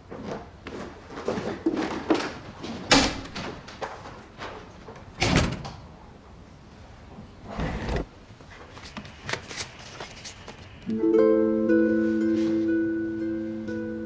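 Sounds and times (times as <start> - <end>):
door shutting with heavy thud: 5.2 - 5.8.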